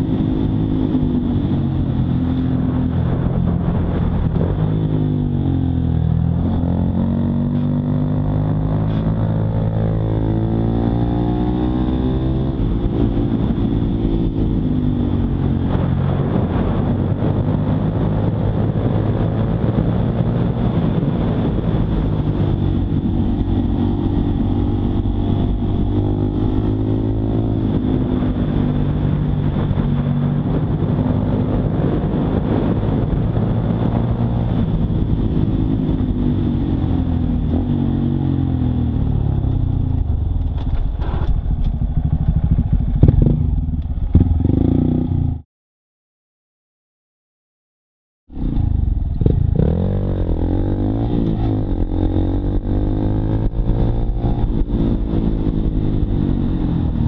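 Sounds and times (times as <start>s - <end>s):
motorcycle engine accelerating: 0.0s - 45.4s, 48.3s - 57.0s.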